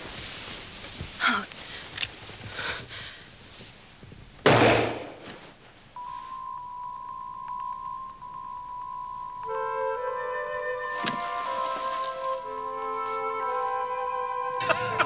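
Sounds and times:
loud gunshot: 4.5 - 5.1
music with held high note: 6.0 - 15.0.

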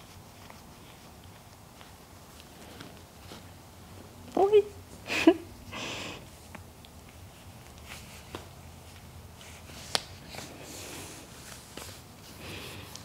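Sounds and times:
sock rustling on leg: 0.0 - 4.2.

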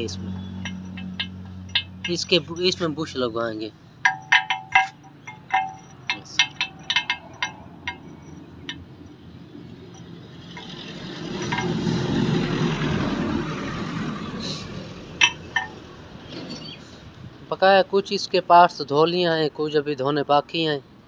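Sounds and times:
light metallic clinks: 0.0 - 3.2, 4.0 - 12.2, 15.2 - 15.8
passing vehicle rushing: 8.9 - 17.1.

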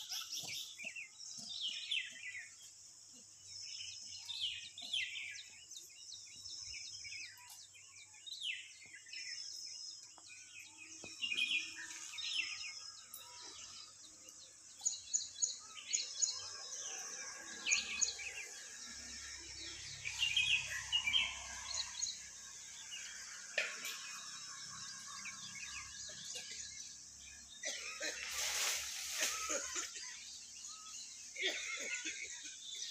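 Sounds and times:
small birds chirping: 0.0 - 32.9
steady high-pitched hiss: 0.0 - 32.9.

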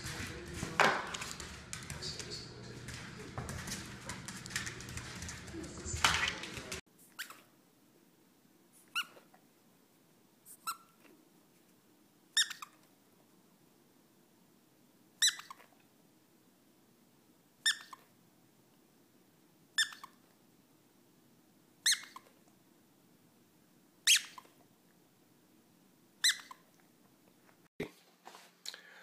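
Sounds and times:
squeaky toy squeaks: 7.1 - 7.5, 8.8 - 9.3, 10.5 - 11.0, 12.4 - 12.8, 15.2 - 15.7, 17.6 - 18.0, 19.8 - 20.2, 21.8 - 22.3, 24.0 - 24.6, 26.2 - 26.6.

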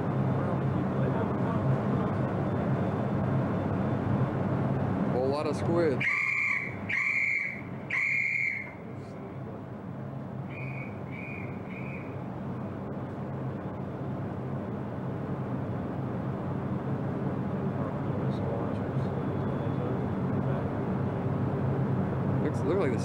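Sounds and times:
low machinery hum: 0.0 - 23.0
faint answering whistle blasts: 6.0 - 8.8, 10.5 - 12.2
ship whistle blasts: 6.0 - 8.8.

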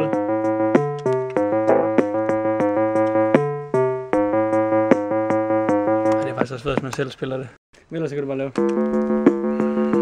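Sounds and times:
organ-like keyboard chords: 0.0 - 6.4, 8.5 - 10.0
ticking beat with bass notes: 0.0 - 6.9, 8.5 - 10.0.

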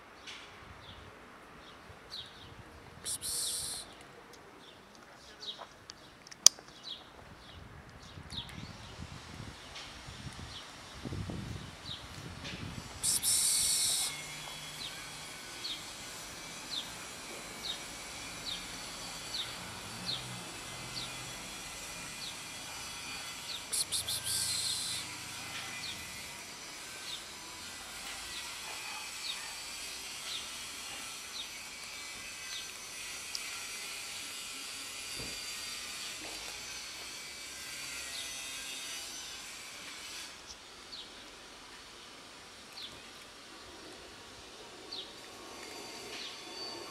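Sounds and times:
insects hissing: 3.1 - 3.9, 12.8 - 16.9, 23.5 - 25.2
loud insect buzzing: 13.0 - 27.0.

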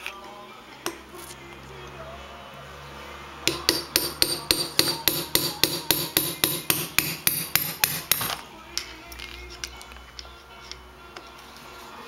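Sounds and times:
hammer striking steel punch: 3.4 - 8.4.

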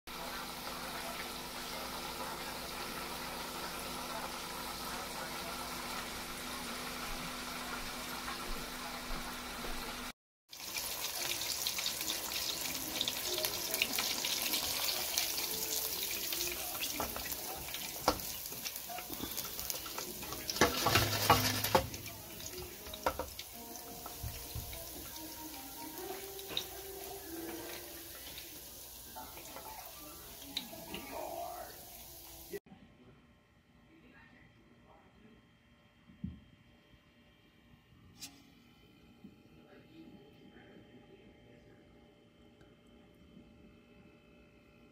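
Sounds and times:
oil crackling and popping: 10.5 - 25.1
oil bubbling hiss: 10.5 - 32.6.

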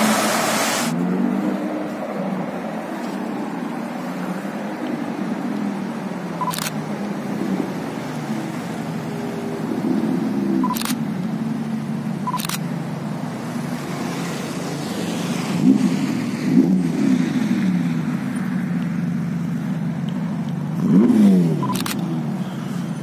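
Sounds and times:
engine throttle blips: 20.0 - 23.0
sharp clicks: 21.6 - 22.0.

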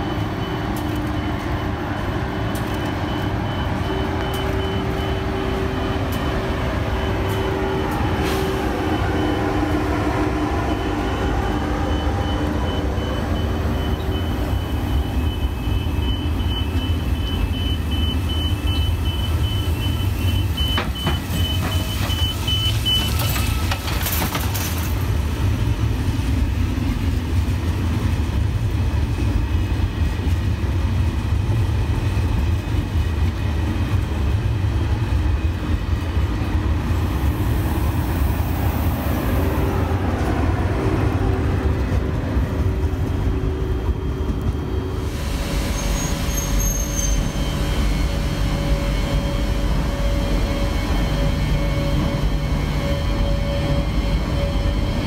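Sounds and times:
train rumbling: 0.0 - 55.0.

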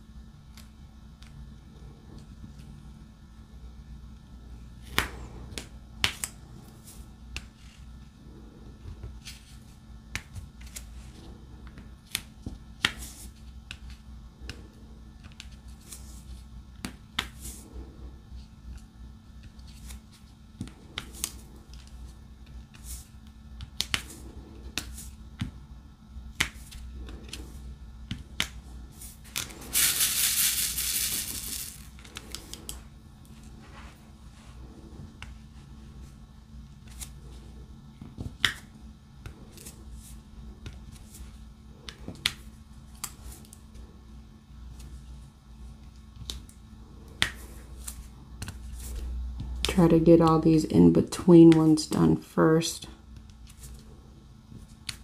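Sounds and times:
hissing rattling burst: 29.6 - 31.9.

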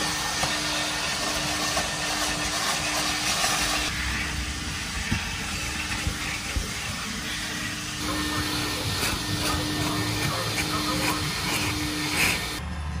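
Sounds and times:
car wash equipment hissing: 0.0 - 12.7
constant hum: 0.0 - 13.0.

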